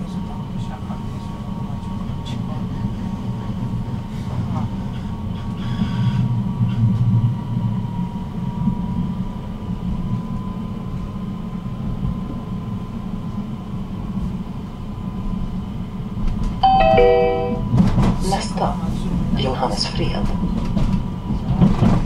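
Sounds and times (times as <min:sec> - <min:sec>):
tram rumbling on rails: 0:00.0 - 0:22.0
descending chime: 0:16.6 - 0:17.8.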